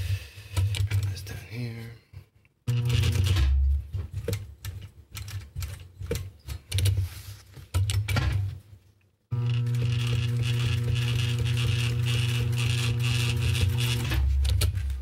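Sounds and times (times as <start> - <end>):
sewing machine stitching: 2.7 - 7.0, 9.3 - 15.0.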